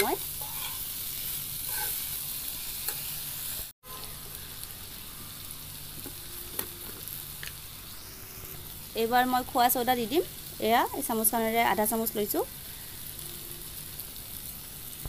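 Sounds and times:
steel ladle scraping wok: 0.0 - 4.3
food sizzling in hot oil: 0.0 - 15.0.

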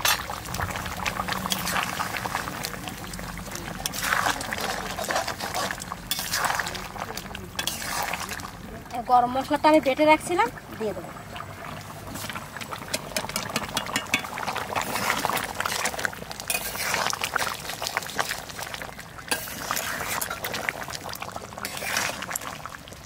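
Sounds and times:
metal ladle scraping a pan: 0.0 - 6.8, 7.6 - 8.5, 12.9 - 15.5, 16.5 - 17.2, 19.3 - 20.8, 21.6 - 22.3
curry bubbling: 0.0 - 23.0.

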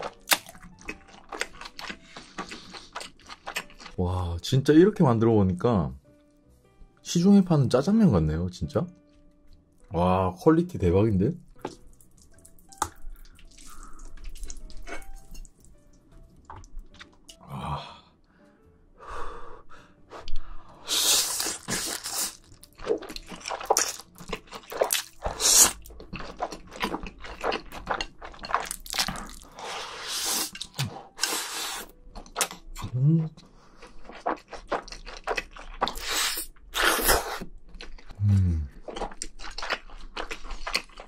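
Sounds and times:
wet chewing and lip smacks: 0.0 - 4.0, 11.6 - 15.8
loud slurping of noodles: 29.6 - 30.5, 31.2 - 31.9, 36.0 - 37.4.

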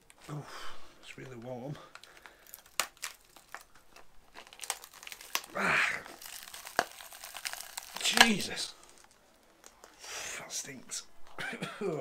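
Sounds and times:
melted plastic crackling and snapping: 1.1 - 10.0.

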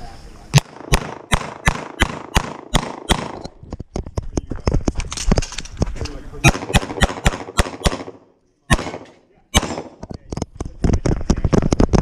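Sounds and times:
pistol shots: 0.6 - 3.5, 6.4 - 10.1.

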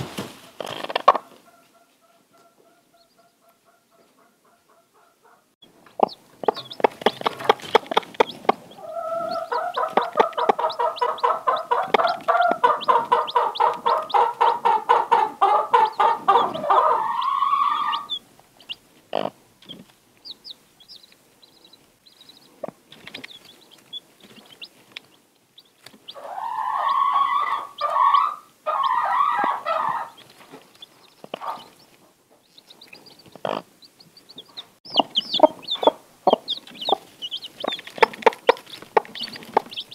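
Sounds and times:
chicks peeping: 0.0 - 39.9
hen clucking rapidly: 0.6 - 1.7, 2.4 - 39.9.

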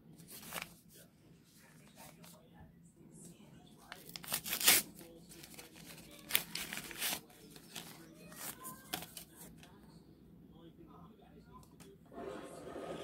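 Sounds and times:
paper envelope tearing: 0.2 - 0.8, 3.9 - 9.3
paper crinkling: 0.2 - 1.0, 3.8 - 9.6.

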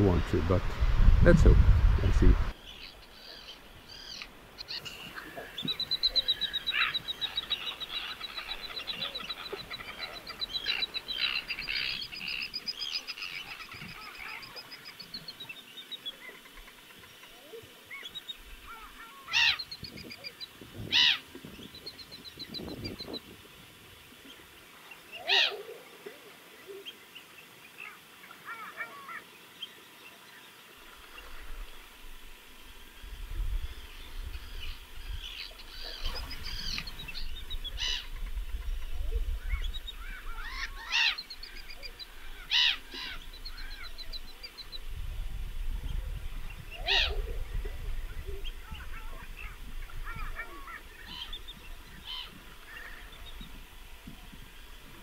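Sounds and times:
terns calling sharply: 2.5 - 23.2, 33.8 - 44.8.

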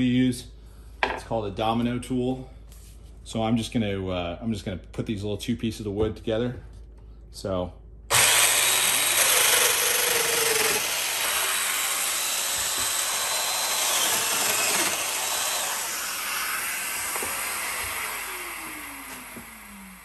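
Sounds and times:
power joiner cutting wood: 8.1 - 20.0.

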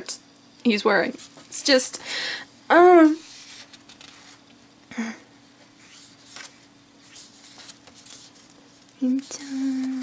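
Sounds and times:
paper pages turning: 3.2 - 4.4, 5.8 - 8.6.

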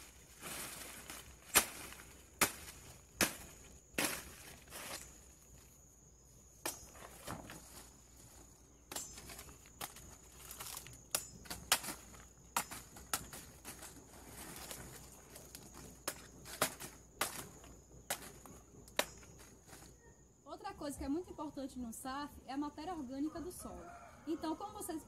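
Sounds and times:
dry leaves crackling and rustling: 0.0 - 5.6, 9.1 - 17.6
footsteps on leaf litter: 0.0 - 5.6, 11.6 - 17.0.

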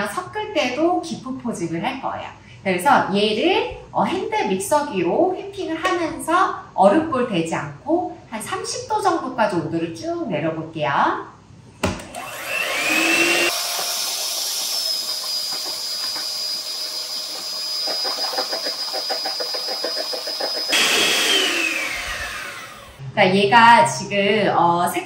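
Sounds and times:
electric hand mixer whine: 12.1 - 23.0.

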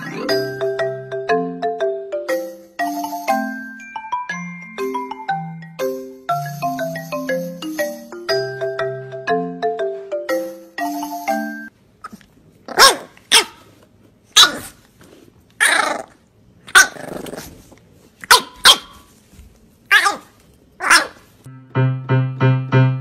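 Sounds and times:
chiming tune: 0.0 - 11.7
puppy barking: 12.7 - 13.6, 14.3 - 14.8, 18.2 - 19.1, 19.9 - 21.2.

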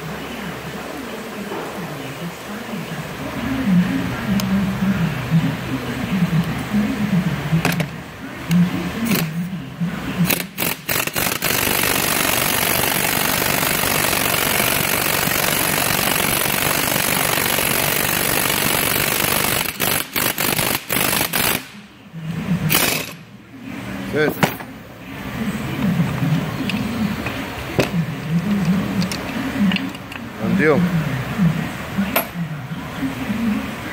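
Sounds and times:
impact wrench hammering: 10.2 - 21.7, 22.7 - 23.2, 26.7 - 30.1, 32.1 - 32.4.

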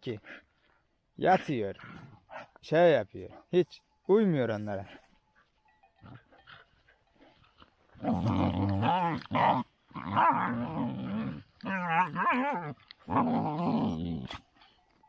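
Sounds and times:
puppies growling: 7.9 - 14.6.

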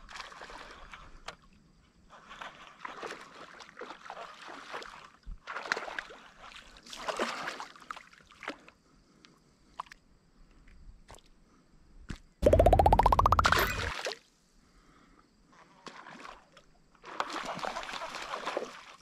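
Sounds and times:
fish splashing in water: 17.1 - 19.0.

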